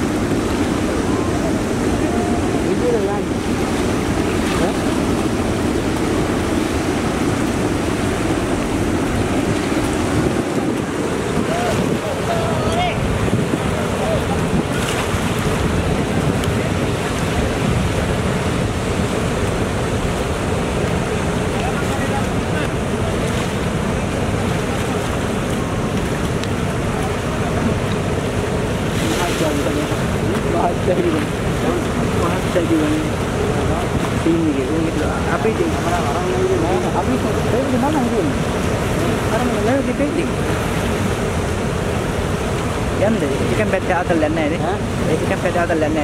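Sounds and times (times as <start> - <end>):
wind rushing: 0.0 - 20.7
choppy water: 0.0 - 46.0
wind buffeting microphone: 0.0 - 46.0.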